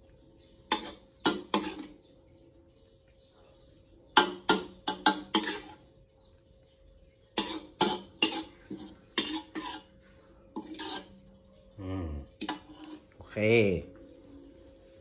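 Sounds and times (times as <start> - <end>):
utensils clinking on dishes: 0.6 - 2.0, 4.2 - 5.9, 7.0 - 13.2.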